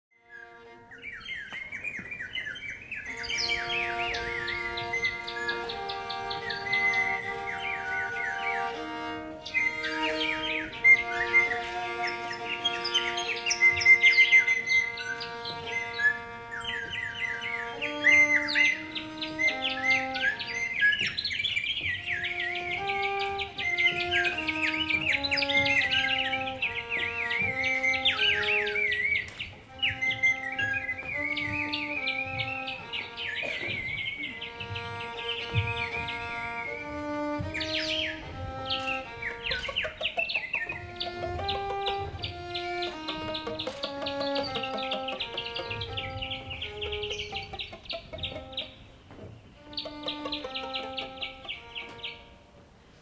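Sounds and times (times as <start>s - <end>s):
bird-call whistles warbling: 0.2s - 48.8s, 49.6s - 52.2s
pipe organ chords: 3.1s - 52.6s
bird whistles chirping: 9.4s - 34.4s.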